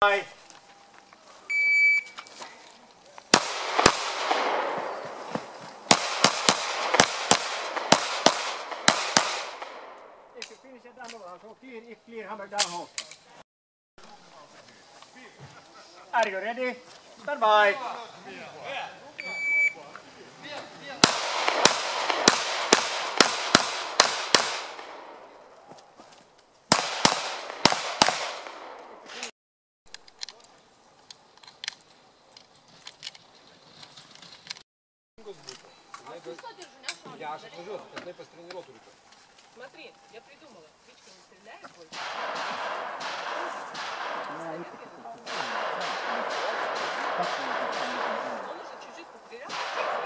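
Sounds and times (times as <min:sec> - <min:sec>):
pistol shots echoing: 0:03.3 - 0:10.3, 0:21.0 - 0:25.4, 0:26.7 - 0:29.3, 0:41.9 - 0:48.8, 0:49.4 - 0:50.0.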